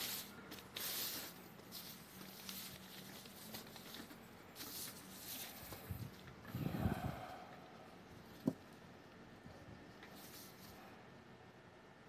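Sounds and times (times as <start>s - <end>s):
paper rustling and sliding: 0.0s - 6.2s
faint steady hum: 0.0s - 12.0s.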